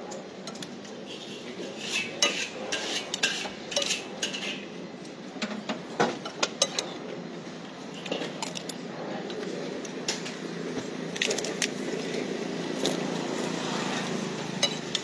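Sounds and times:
spoon scraping and clinking bowl: 1.1s - 4.6s.

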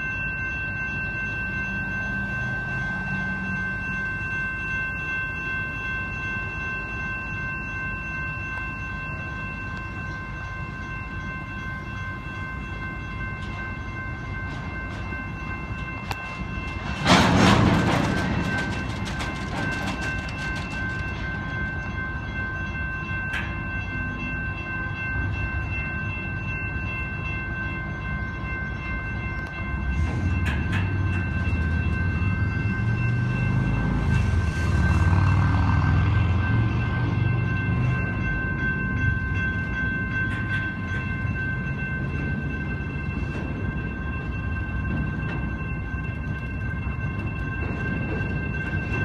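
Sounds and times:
train wheels rumbling on rail: 0.0s - 49.0s
deeper rumble: 15.7s - 21.7s
rattling clatter: 15.8s - 21.7s.

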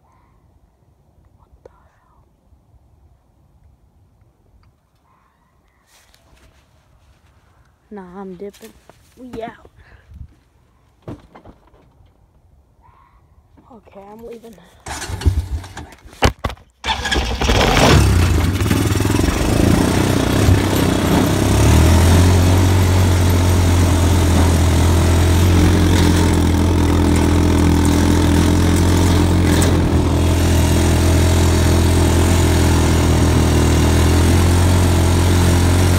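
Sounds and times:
quad bike engine running: 16.9s - 35.9s.

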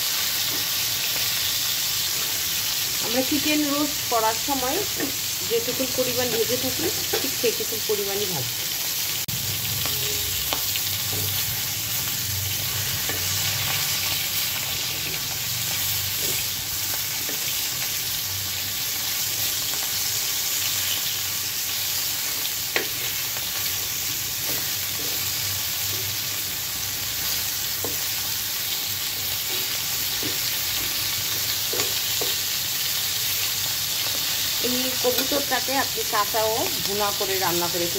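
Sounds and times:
meat sizzling in oil in a frying pan: 0.0s - 37.9s
spatula scraping and knocking pan: 29.4s - 32.5s.

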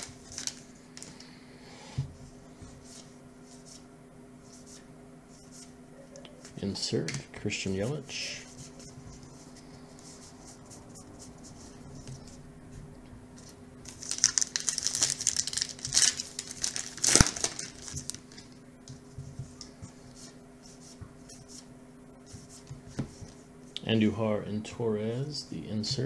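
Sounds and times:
wrapper tearing and crinkling: 0.0s - 0.7s, 13.8s - 18.4s.

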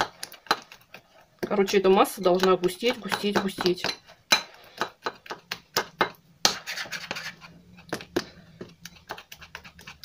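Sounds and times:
utensil scraping glass bowl: 6.5s - 7.6s.

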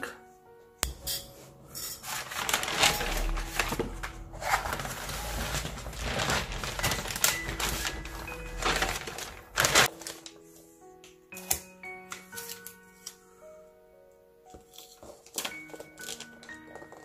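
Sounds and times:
packing paper crinkling: 2.0s - 10.4s.

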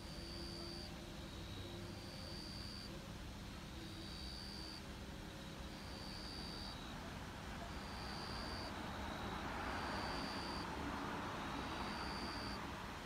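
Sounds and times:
faint high-pitched tone: 0.0s - 10.8s, 11.4s - 12.7s
vehicle passing on road: 8.5s - 13.0s.

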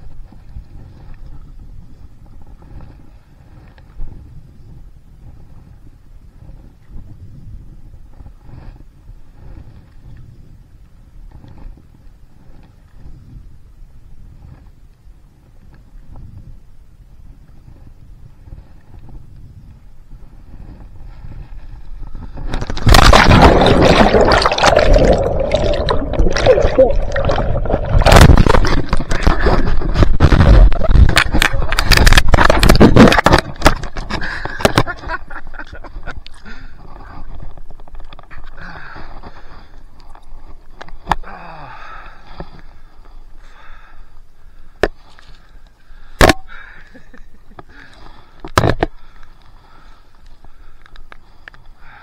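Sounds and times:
water splashing and sloshing: 22.4s - 35.2s.

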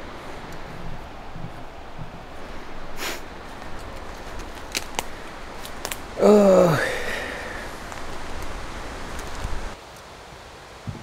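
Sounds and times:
wind rustling trees: 0.0s - 11.0s
man's wordless vocal sound: 6.1s - 7.7s.

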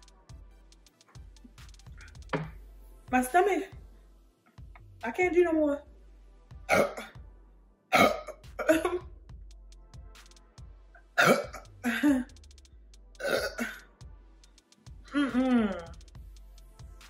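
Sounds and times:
woman's harsh throat sounds: 6.7s - 7.2s, 7.9s - 9.1s, 11.2s - 12.3s, 13.2s - 13.9s, 15.1s - 16.0s.

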